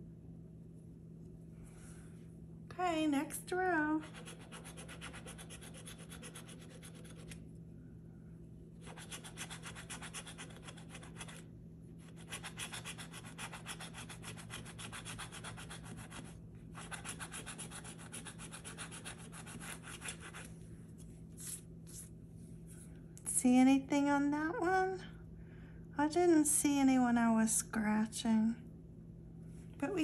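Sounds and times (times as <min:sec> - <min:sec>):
coin scratching lottery ticket: 0:04.0 - 0:07.4, 0:08.8 - 0:11.4, 0:12.0 - 0:20.4.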